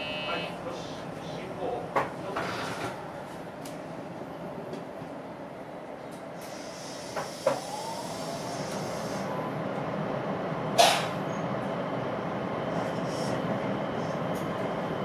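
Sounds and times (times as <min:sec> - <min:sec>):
train wheels rumbling on rails: 0:05.9 - 0:15.0.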